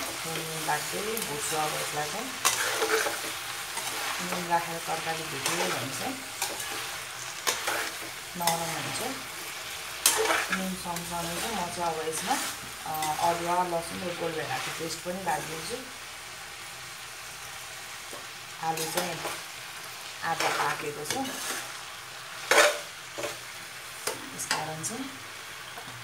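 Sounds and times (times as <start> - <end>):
metal spatula scraping pan: 0.0 - 15.7, 20.3 - 21.8, 22.4 - 23.4
vegetables sizzling in pan: 0.0 - 26.0.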